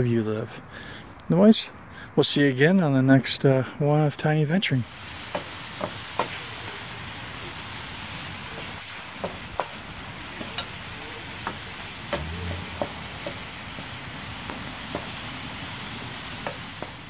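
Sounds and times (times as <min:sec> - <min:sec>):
food sizzling in a pan: 0:04.8 - 0:17.0
wooden spoon stirring: 0:09.2 - 0:17.0.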